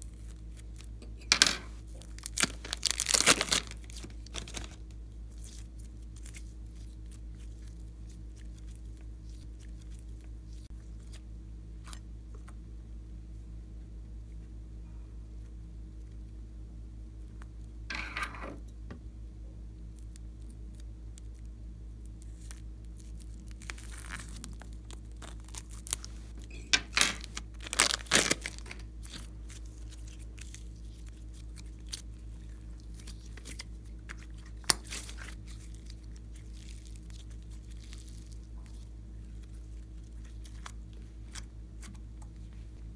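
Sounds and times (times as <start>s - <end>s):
low electrical hum: 0.0s - 42.9s
plastic bag crinkling: 1.8s - 10.7s, 22.2s - 41.5s.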